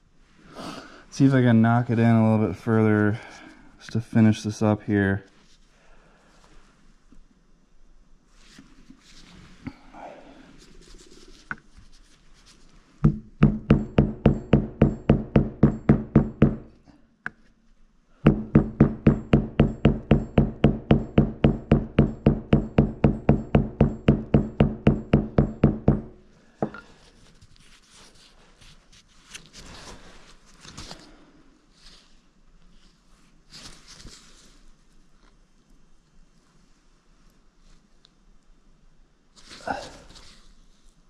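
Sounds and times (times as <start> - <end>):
hammer striking metal: 13.1 - 16.6, 18.3 - 26.2.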